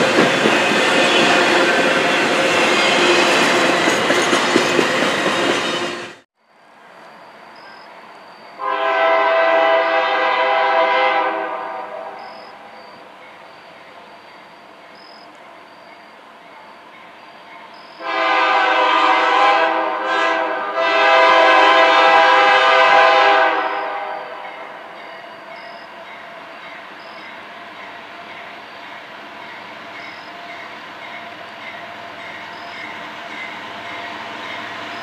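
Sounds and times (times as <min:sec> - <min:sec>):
low train rumble: 0:00.0 - 0:35.0
locomotive air horn: 0:08.6 - 0:12.4, 0:18.0 - 0:25.0.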